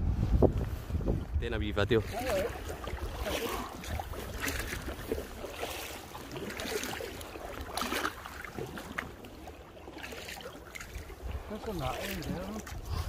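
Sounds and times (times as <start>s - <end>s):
wind on microphone: 0.0s - 5.8s, 11.0s - 13.0s
paddle splashing in water: 1.9s - 13.0s.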